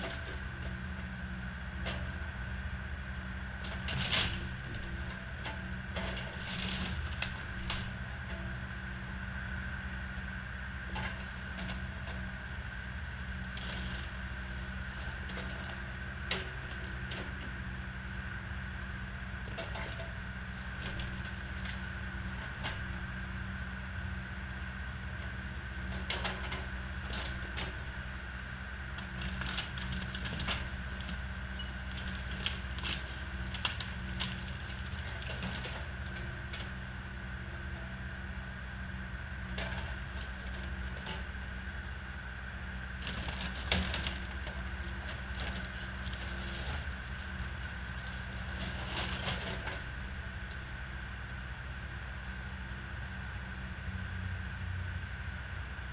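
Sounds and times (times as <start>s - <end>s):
excavator engine whine: 0.0s - 55.9s
wood cracking and splintering: 29.0s - 35.8s, 43.0s - 49.5s.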